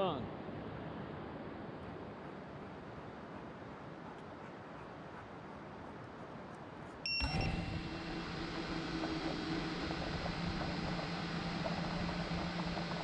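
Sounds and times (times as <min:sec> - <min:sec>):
short high beep: 0:07.1 - 0:07.8
drone propellers humming: 0:07.1 - 0:13.0.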